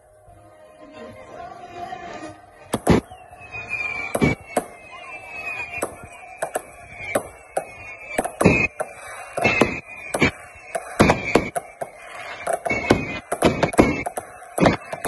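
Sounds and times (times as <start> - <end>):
high falling whistle: 2.6 - 15.0
firework shells bursting: 4.0 - 4.9, 5.5 - 15.0.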